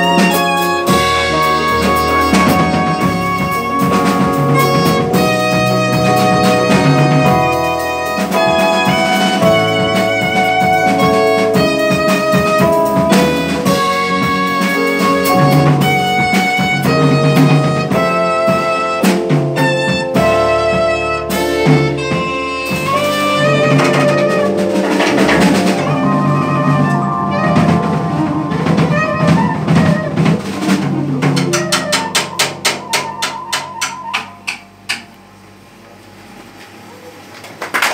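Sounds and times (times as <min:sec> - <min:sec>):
quick drum hits: 0:00.0 - 0:35.0
jazz quartet playing: 0:00.0 - 0:36.1.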